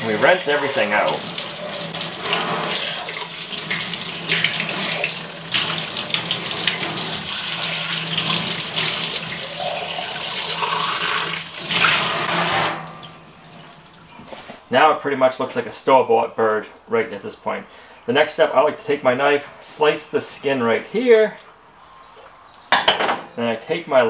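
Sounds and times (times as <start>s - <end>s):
water splashing into metal sink: 0.0s - 14.1s.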